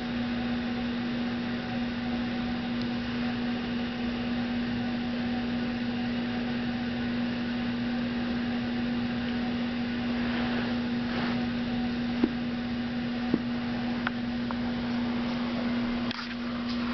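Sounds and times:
steady hum: 0.0s - 16.9s
constant hiss: 9.8s - 12.4s.

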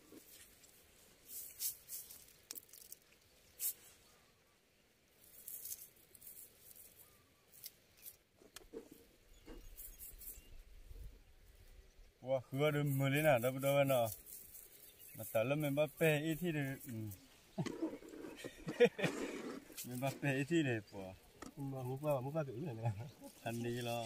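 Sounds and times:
net rustling and crackling: 0.0s - 4.0s, 5.2s - 10.5s, 12.7s - 20.6s.

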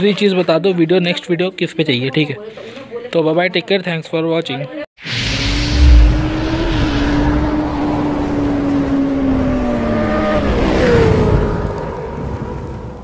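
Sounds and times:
whoosh: 5.0s - 10.5s
motorcycle engine passing by: 5.4s - 12.2s.

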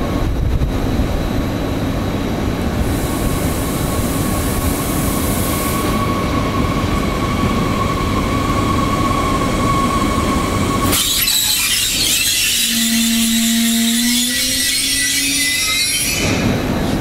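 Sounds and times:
steady high whine: 0.0s - 17.0s
hiss: 2.8s - 6.2s.

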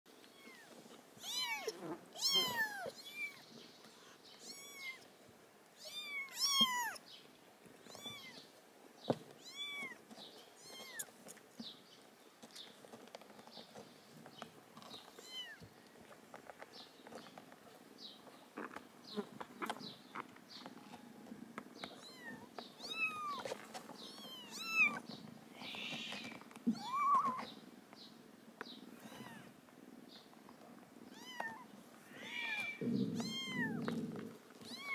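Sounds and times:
kittens mewing: 0.3s - 3.4s, 4.0s - 5.0s, 5.8s - 7.0s, 29.0s - 29.5s, 31.1s - 34.9s.

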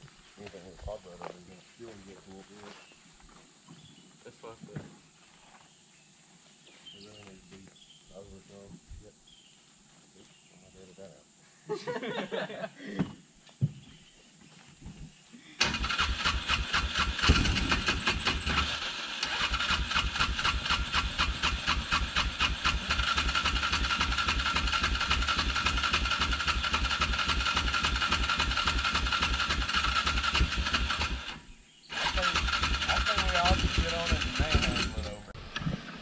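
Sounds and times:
utility vehicle engine running unevenly: 15.6s - 36.0s.

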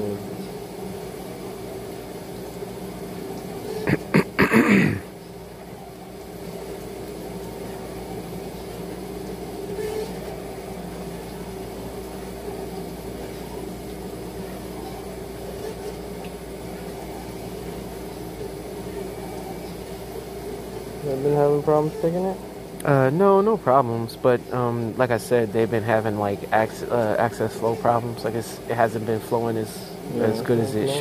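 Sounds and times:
low machine hum: 0.0s - 31.0s.

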